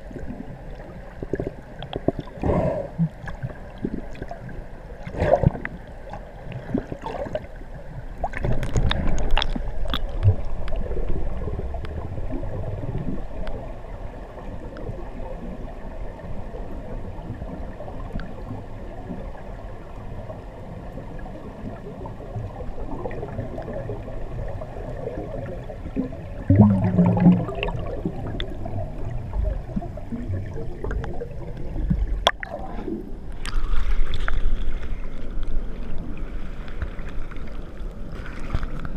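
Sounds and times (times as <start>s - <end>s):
scuba bubbles gurgling underwater: 0.0s - 34.2s
underwater rushing surges: 0.0s - 38.9s.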